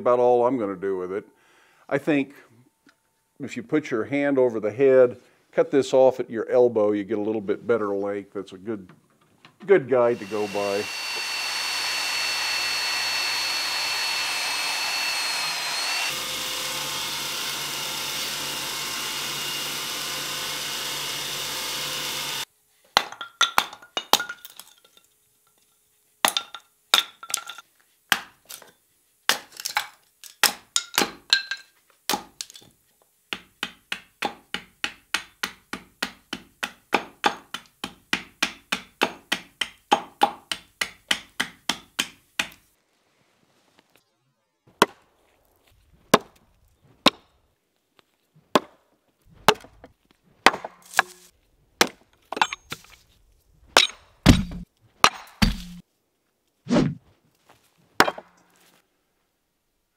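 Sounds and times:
power saw cutting wood: 0:10.0 - 0:22.5.

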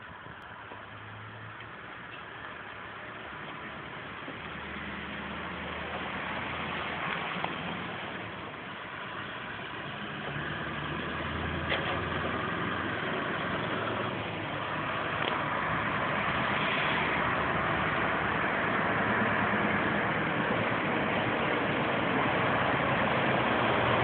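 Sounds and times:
truck engine running: 0:00.0 - 0:24.0.

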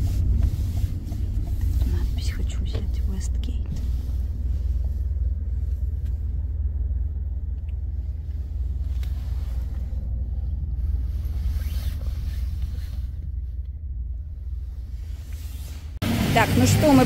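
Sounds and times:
car engine and tyres rumbling: 0:00.0 - 0:17.0.

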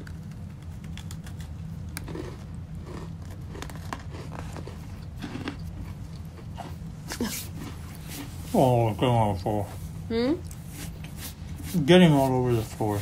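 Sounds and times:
chewing crunchy cookies: 0:00.0 - 0:08.4
steady low hum: 0:00.0 - 0:13.0.

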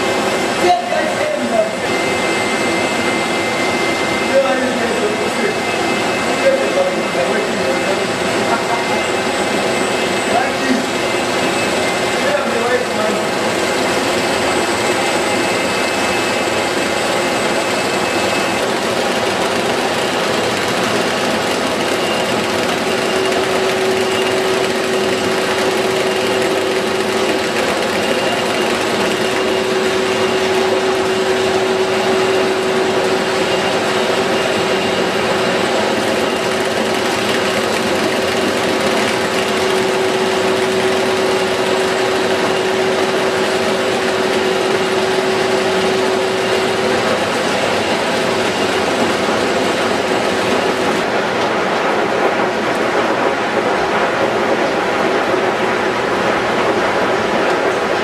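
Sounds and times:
machinery whirring: 0:00.0 - 0:58.0
steady hum: 0:00.0 - 0:58.0.

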